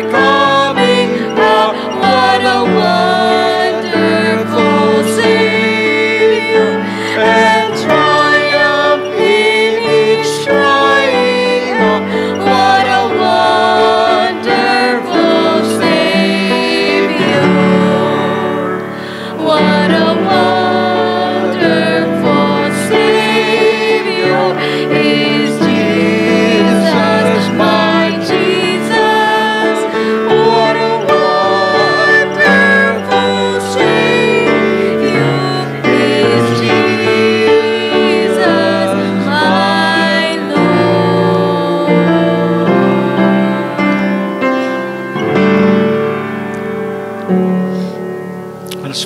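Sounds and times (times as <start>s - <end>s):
woman and man singing a hymn: 0.0s - 45.6s
instrumental accompaniment: 0.0s - 49.0s.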